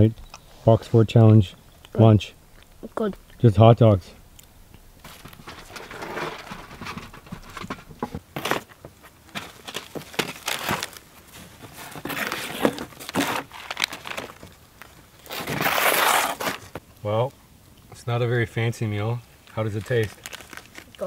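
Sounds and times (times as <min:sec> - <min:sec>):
plastic wrapping crinkling: 0:05.0 - 0:16.8, 0:19.5 - 0:21.0.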